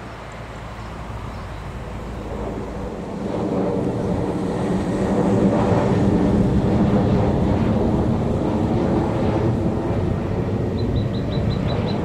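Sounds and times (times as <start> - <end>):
jet engine rumble: 0.0 - 12.0
high chirps: 10.8 - 12.0.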